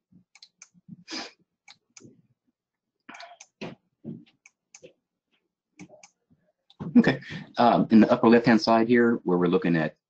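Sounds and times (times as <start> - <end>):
breaths at microphone: 7.2 - 7.6.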